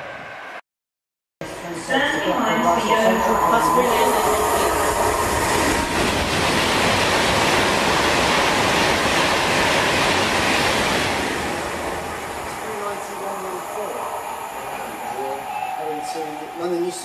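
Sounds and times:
train passing close by: 1.4 - 17.0.

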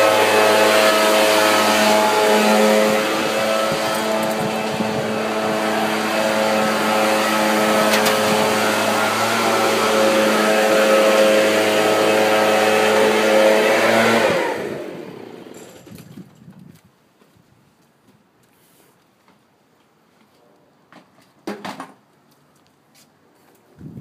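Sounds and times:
leaf blower engine: 0.0 - 15.8.

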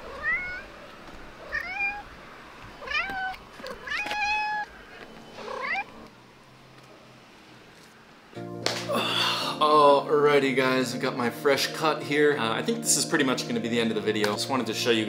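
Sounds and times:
cat meowing: 0.0 - 0.7, 1.4 - 2.2, 2.8 - 6.0.

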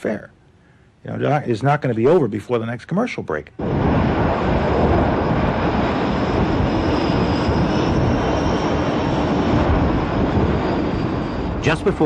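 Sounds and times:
jet engines running: 3.6 - 12.0.

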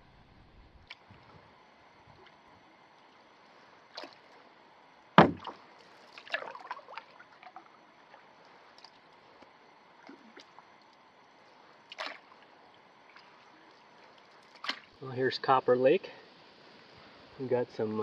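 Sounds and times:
paddle splashes: 3.9 - 4.3, 5.2 - 7.1, 11.9 - 12.4, 13.1 - 15.0.

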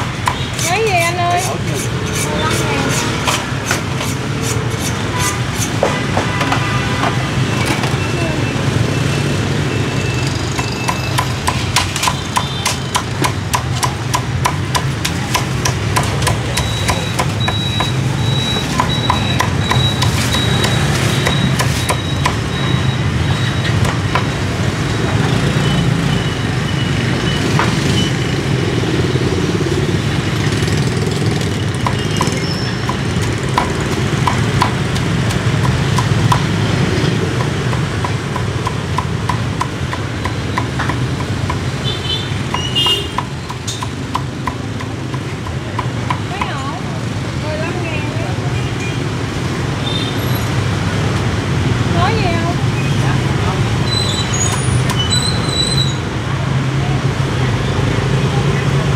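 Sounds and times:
traffic engine hum: 0.0 - 58.9
cleaver chopping on wooden block: 10.6 - 18.0, 18.6 - 22.4, 31.8 - 36.6, 37.3 - 41.7, 42.5 - 46.6.

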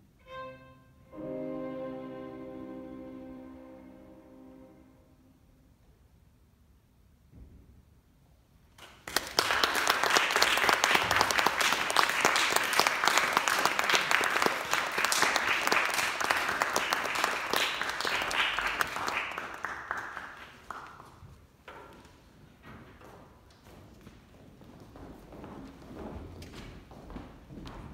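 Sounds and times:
audience applauding: 8.8 - 21.2.

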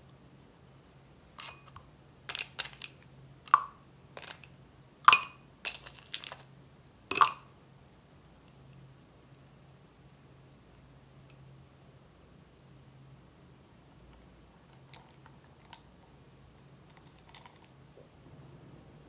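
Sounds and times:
ice cubes clinking into glass: 5.1 - 6.4.

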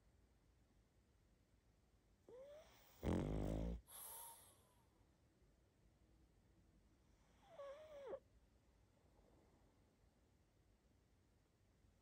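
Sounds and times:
dog snoring: 2.3 - 4.6, 7.3 - 8.2.

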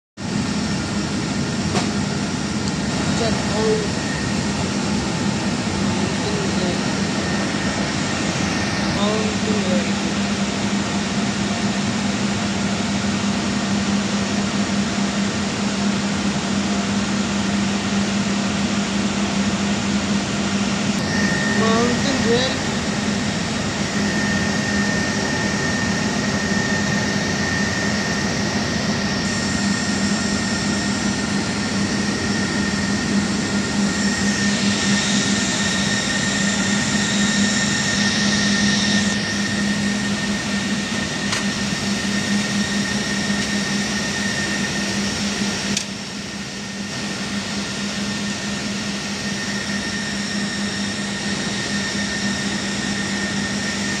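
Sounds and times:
cooling fans whirring: 0.2 - 54.0
high whine: 0.2 - 54.0
brief click: 45.7 - 45.9.

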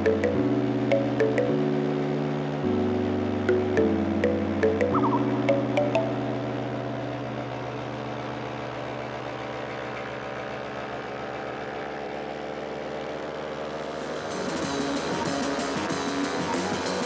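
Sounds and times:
paramotor engine drone: 6.2 - 17.0.

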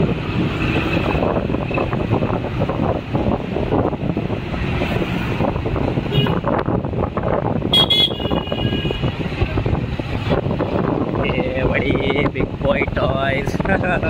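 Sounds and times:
street traffic noise: 0.0 - 14.0
vehicle horns honking: 6.0 - 6.6, 7.7 - 9.2.

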